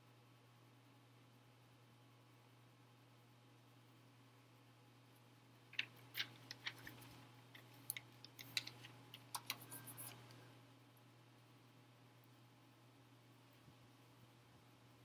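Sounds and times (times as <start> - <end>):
light sharp clicks and taps: 5.7 - 10.4.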